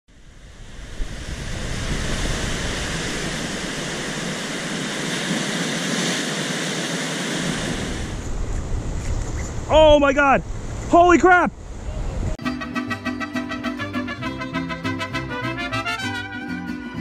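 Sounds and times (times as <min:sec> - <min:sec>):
surf breaking over rocks: 0:00.1 - 0:08.2.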